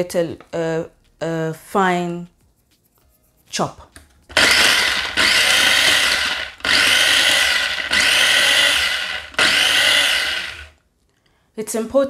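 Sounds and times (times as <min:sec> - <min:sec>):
electric mini chopper whirring: 0:04.4 - 0:10.8.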